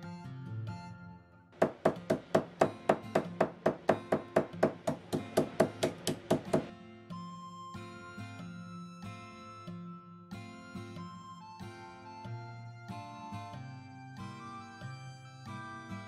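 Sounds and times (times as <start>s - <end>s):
hammer tapping on plastic bag: 1.6s - 6.7s.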